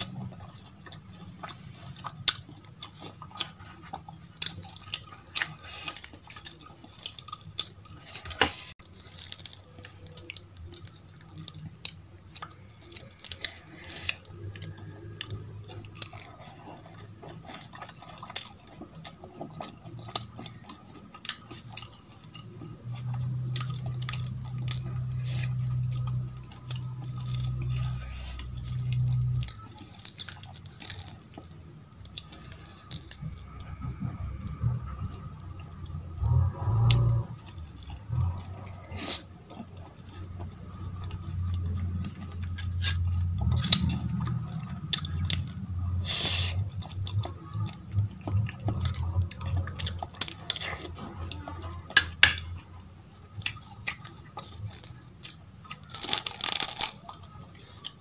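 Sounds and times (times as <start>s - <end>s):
chewing and wet mouth sounds: 0.0s - 58.0s
crisp crust crackling as torn: 4.5s - 12.1s, 53.2s - 58.0s
low hum: 22.6s - 52.9s.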